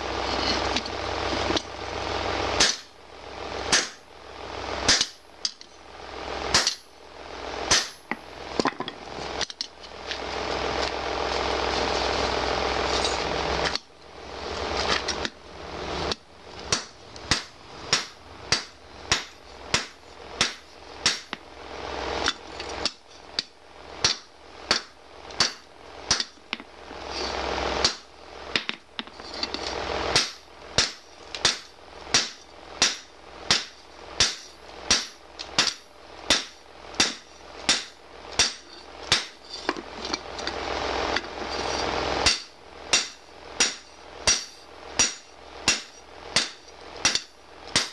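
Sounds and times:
hammer striking metal on anvil: 2.6s - 2.9s, 3.7s - 4.0s, 4.9s - 5.6s, 6.5s - 6.9s, 7.7s - 8.1s, 16.7s - 21.4s, 24.0s - 26.4s, 30.2s - 39.4s, 42.2s - 47.9s.

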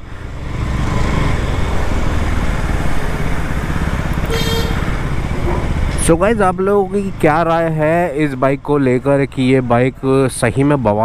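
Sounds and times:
motorcycle engine rumbling: 0.0s - 10.9s
brief high tone: 4.2s - 4.8s.

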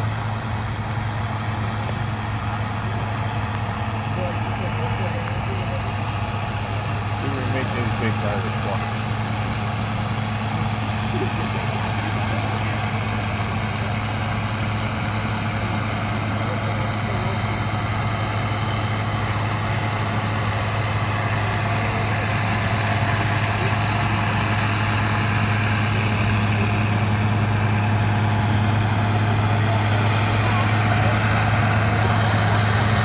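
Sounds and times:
diesel engine at high revs: 0.0s - 33.0s.

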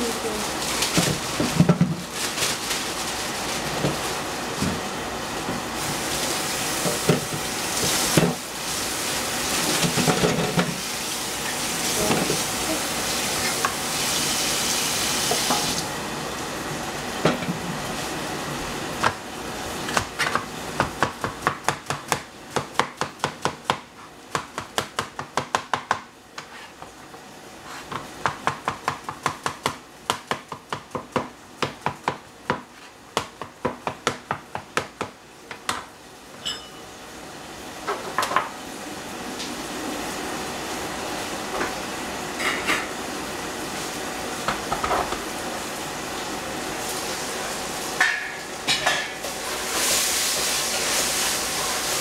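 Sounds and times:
pan sizzling: 5.7s - 15.9s, 46.8s - 52.0s.

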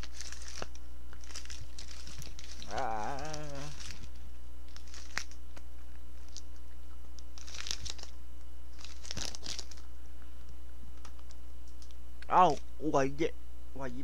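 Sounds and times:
plastic film crinkling: 0.0s - 12.6s
low electrical hum: 0.0s - 14.0s
person grunting: 2.6s - 3.8s.

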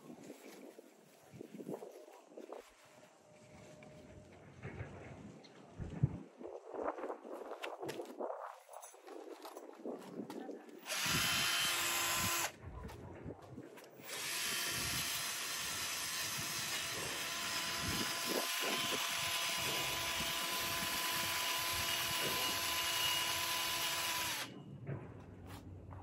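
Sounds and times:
drill wire brush on metal: 10.8s - 12.5s, 13.9s - 24.5s.

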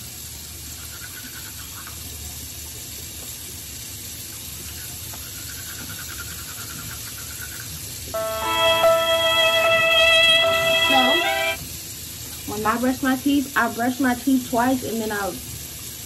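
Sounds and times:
toothbrush scrubbing teeth: 4.7s - 7.7s
water running from a tap: 12.3s - 16.0s.

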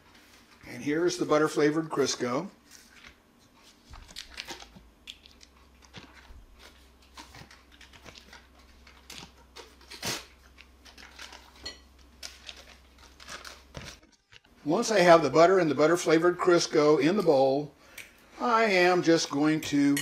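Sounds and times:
foil wrapper crinkling: 2.6s - 14.6s.

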